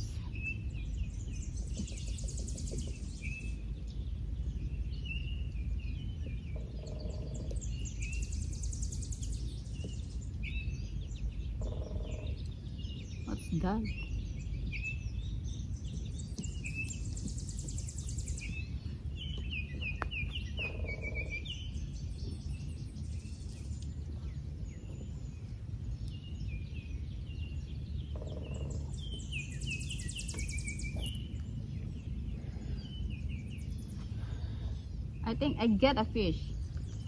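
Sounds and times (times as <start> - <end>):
low background rumble: 0.0 - 37.0
songbirds singing: 0.0 - 37.0
bird chirps ending in buzzy trill: 27.7 - 31.4.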